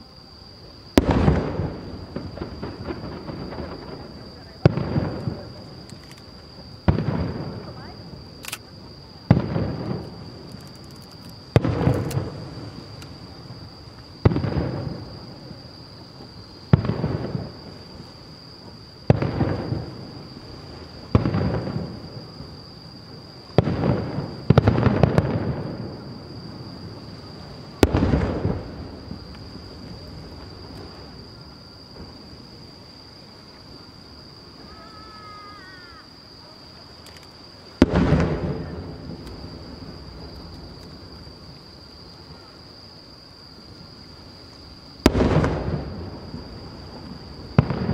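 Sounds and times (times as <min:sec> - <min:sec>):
firework shells booming: 0:00.9 - 0:08.4, 0:09.2 - 0:10.6, 0:11.4 - 0:15.6, 0:16.2 - 0:18.0, 0:18.6 - 0:22.6, 0:23.5 - 0:32.5, 0:37.7 - 0:41.4, 0:45.0 - 0:47.9.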